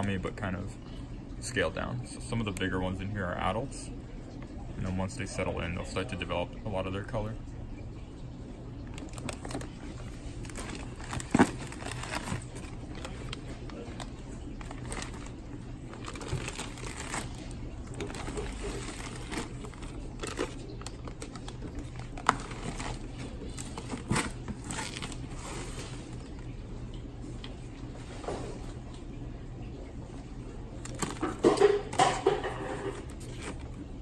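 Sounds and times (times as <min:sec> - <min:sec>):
plastic bags crinkling: 0:08.9 - 0:26.4, 0:30.7 - 0:33.7.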